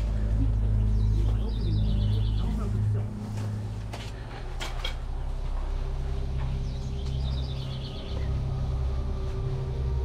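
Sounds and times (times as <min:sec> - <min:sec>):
bird chirping: 0:00.0 - 0:03.8, 0:05.8 - 0:09.5.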